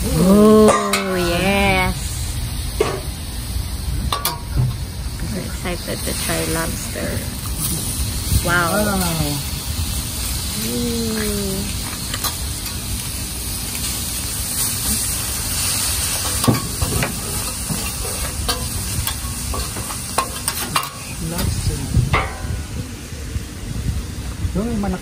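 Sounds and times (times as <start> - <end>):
lobster sizzling on a griddle: 0.0 - 25.0
metal spatula scraping griddle: 14.5 - 21.1.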